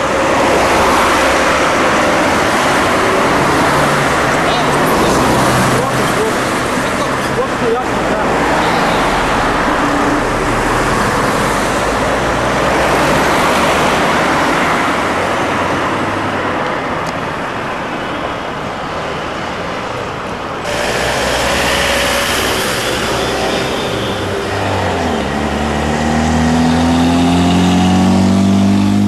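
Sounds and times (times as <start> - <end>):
road noise: 0.0 - 29.0
car engine hum: 20.0 - 29.0.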